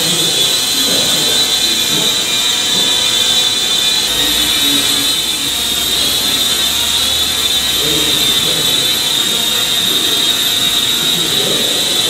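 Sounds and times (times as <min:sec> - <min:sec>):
toy drone high-pitched whine: 0:00.0 - 0:12.0.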